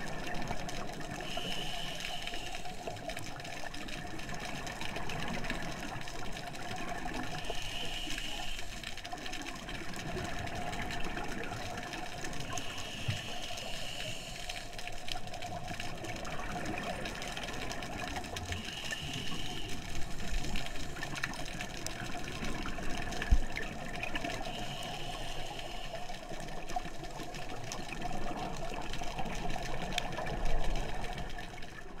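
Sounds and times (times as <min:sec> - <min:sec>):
underwater water noise: 0:00.0 - 0:32.0
regulator breathing hiss: 0:01.2 - 0:03.0, 0:07.2 - 0:08.9, 0:12.5 - 0:14.8, 0:18.6 - 0:21.0, 0:24.4 - 0:26.2.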